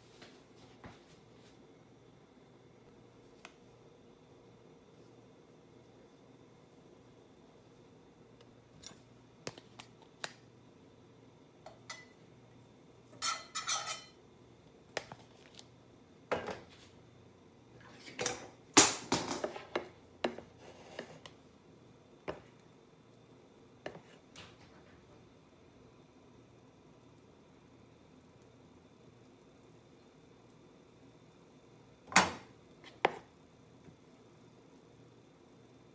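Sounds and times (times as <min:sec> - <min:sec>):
kitchen utensils clattering: 0:13.1 - 0:14.2.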